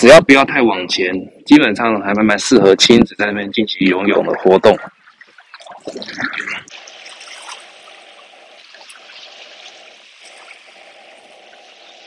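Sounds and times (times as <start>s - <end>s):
small waves washing on shore: 6.7s - 12.0s.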